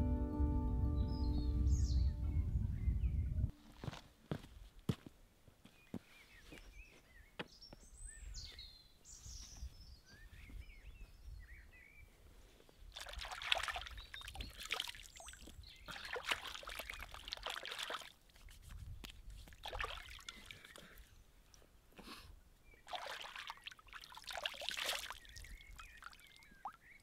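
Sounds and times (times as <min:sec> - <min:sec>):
water splashing and dripping: 0:12.9 - 0:20.9, 0:22.8 - 0:26.9
small bird chirping: 0:25.1 - 0:27.0.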